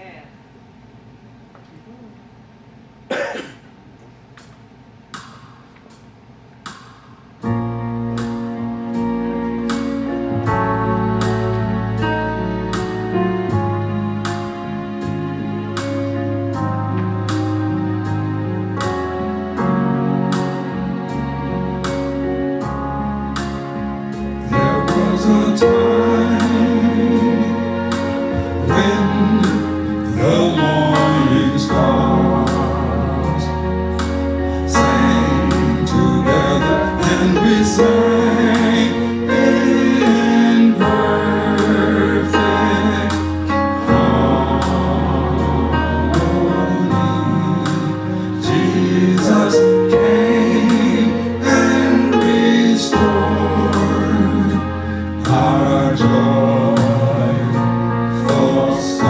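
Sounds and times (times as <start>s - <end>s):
accompaniment with steady beat: 3.1s - 59.0s
voices singing with vibrato: 24.2s - 59.0s.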